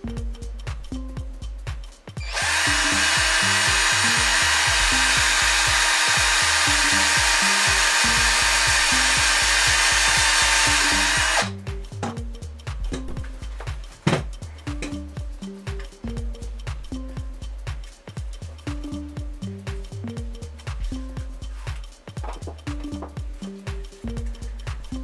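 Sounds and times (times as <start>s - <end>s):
background music with steady beat: 0.0s - 25.0s
cordless drill running: 2.2s - 11.5s.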